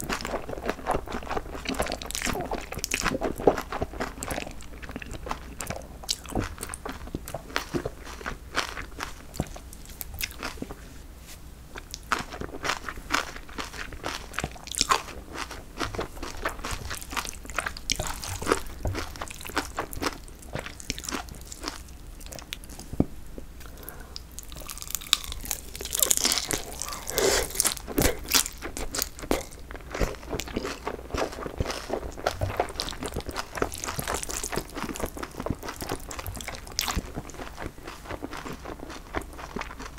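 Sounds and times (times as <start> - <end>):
wet crunching and chewing: 0.0 - 10.8, 11.8 - 23.0, 23.6 - 39.9
noodle slurping: 26.5 - 28.3.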